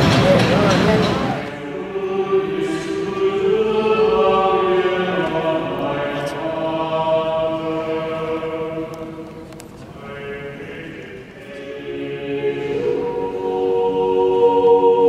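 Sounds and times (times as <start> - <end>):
choir singing chant-like lines: 1.1 - 15.0.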